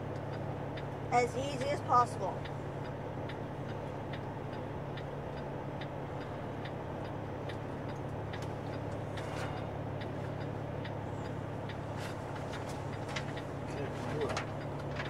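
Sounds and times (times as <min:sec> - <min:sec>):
diesel engine droning: 0:00.0 - 0:15.0
turn signal ticking: 0:00.0 - 0:15.0.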